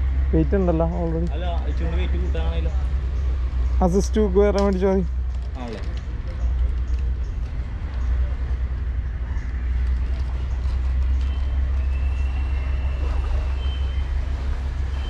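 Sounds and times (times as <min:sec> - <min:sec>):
faint high whistling tone: 0:11.2 - 0:14.2.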